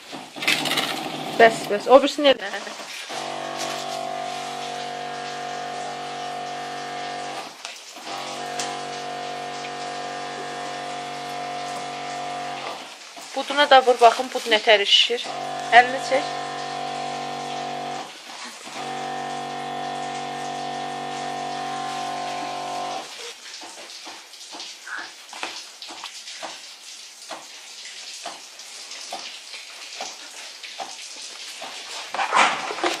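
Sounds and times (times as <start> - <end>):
electric pump humming: 0.0 - 13.0, 15.2 - 23.2
liquid splashing and dripping: 0.0 - 33.0.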